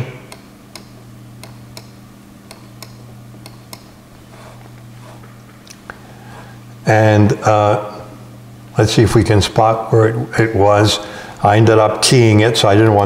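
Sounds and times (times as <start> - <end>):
steady low hum: 0.0 - 13.0
computer mouse clicking: 0.3 - 4.6.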